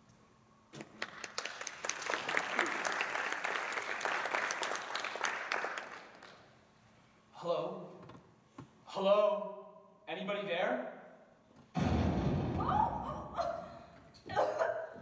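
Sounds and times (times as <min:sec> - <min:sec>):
audience applauding: 0:00.8 - 0:06.5.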